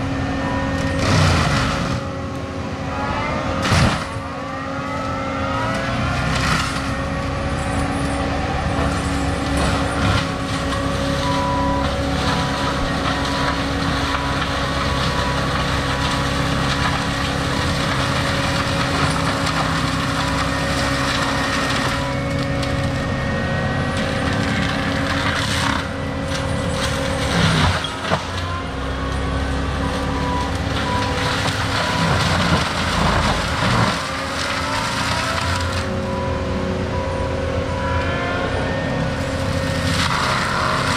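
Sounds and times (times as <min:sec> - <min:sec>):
diesel machine engine drone: 0:00.0 - 0:40.9
crunching of brush and wood: 0:08.8 - 0:23.2, 0:23.9 - 0:36.1, 0:39.2 - 0:40.9.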